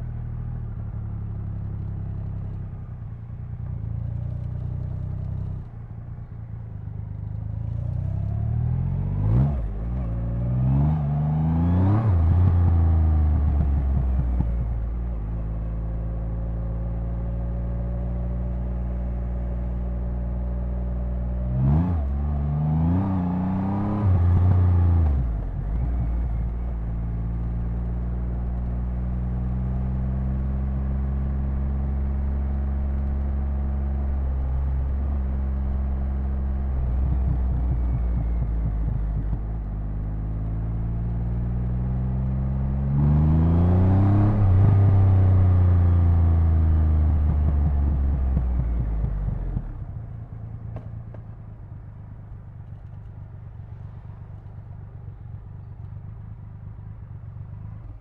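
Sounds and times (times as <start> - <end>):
motorcycle engine and exhaust: 0.0 - 58.0
gear change: 34.6 - 40.6.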